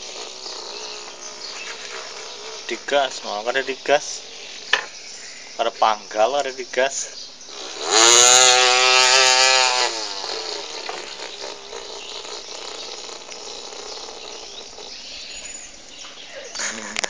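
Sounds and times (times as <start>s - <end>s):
child imitating a chainsaw: 0.0s - 3.4s, 7.5s - 15.4s
background hiss: 0.0s - 17.0s.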